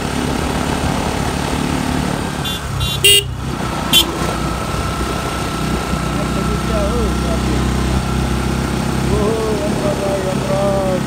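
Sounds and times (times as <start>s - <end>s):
motorcycle engine running: 0.0s - 11.0s
short horn toots: 2.4s - 4.2s.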